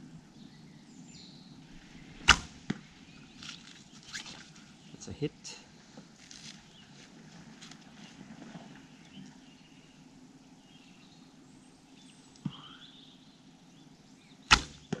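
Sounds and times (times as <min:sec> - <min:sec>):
sharp knock: 0:02.2 - 0:02.8, 0:14.5 - 0:15.0
faint bird chirps: 0:08.0 - 0:15.0.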